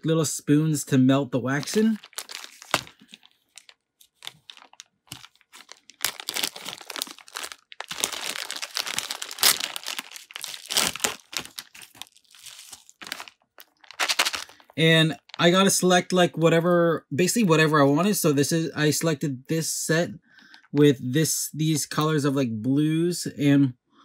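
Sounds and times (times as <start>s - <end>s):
plastic bag and bubble wrap crinkling: 1.4s - 15.8s.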